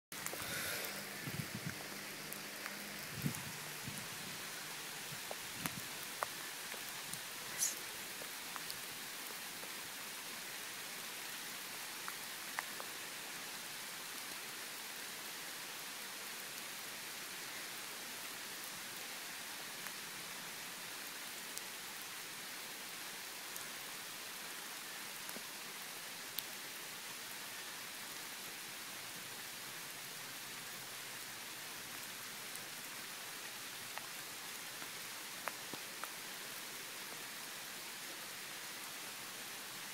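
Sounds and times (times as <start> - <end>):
rain hissing on asphalt: 0.1 - 39.9
faint raindrop ticks: 0.2 - 15.4, 18.6 - 20.4, 24.4 - 28.3, 29.0 - 37.7.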